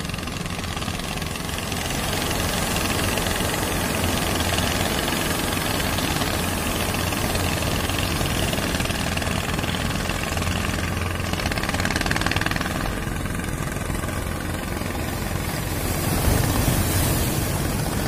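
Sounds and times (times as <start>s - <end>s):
boat engines droning: 0.0s - 18.0s
surf breaking: 15.6s - 18.0s.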